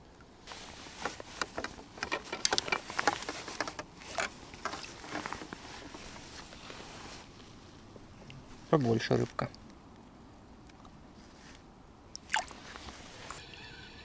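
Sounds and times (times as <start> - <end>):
little splashes and drips: 12.1 - 13.4.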